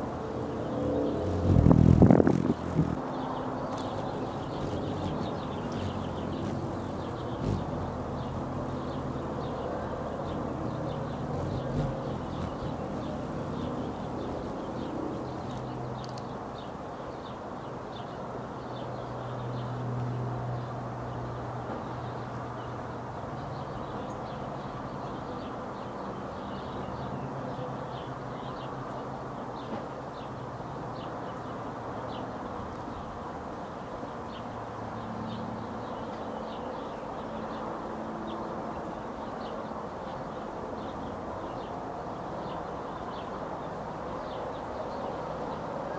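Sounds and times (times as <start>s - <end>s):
low hum: 0.4s - 3.0s.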